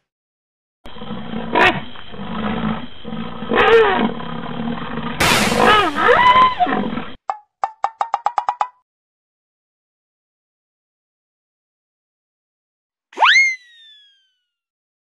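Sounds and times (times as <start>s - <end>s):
large animal roaring: 0.9s - 7.2s.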